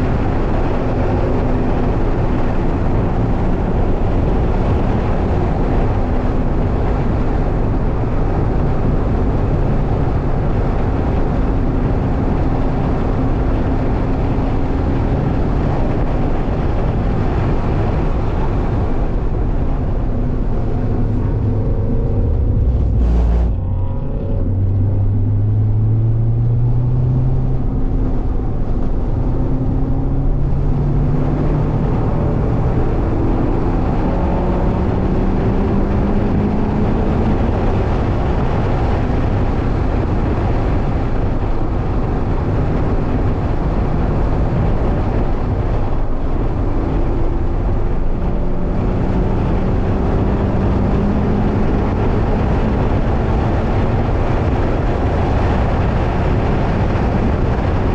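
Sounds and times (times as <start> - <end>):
car engine accelerating: 0.0 - 57.9
tyre and wind noise: 0.0 - 57.9.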